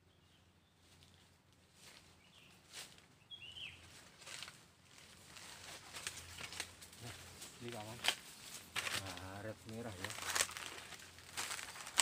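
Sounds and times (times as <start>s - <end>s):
bird chirp: 0.0s - 1.2s, 2.1s - 2.6s, 3.2s - 4.0s
dry leaves rustling: 3.7s - 12.0s.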